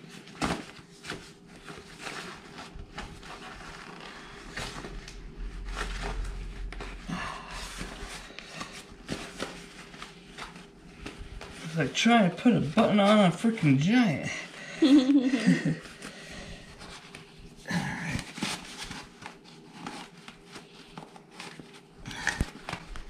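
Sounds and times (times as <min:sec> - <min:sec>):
fabric rustling: 0:00.0 - 0:17.6.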